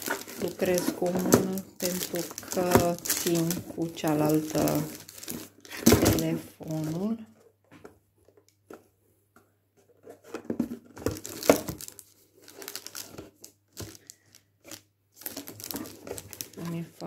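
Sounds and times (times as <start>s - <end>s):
plastic wrapping crinkling: 0.0s - 7.2s, 11.0s - 17.0s.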